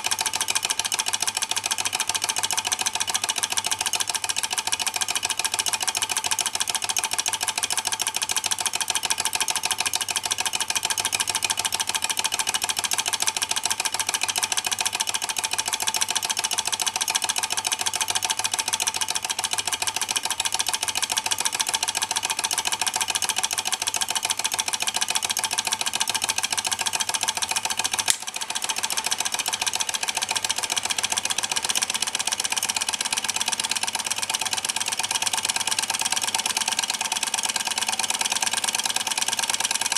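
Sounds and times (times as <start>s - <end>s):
sharp click: 27.9s - 28.6s.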